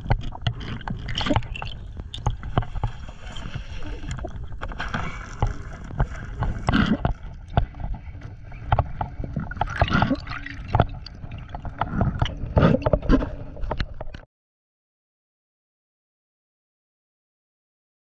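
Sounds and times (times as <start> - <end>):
water moving and gurgling underwater: 0.0 - 14.3.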